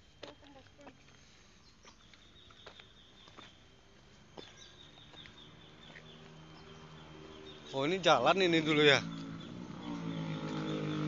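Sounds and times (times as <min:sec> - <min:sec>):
faint footsteps: 0:00.2 - 0:06.4.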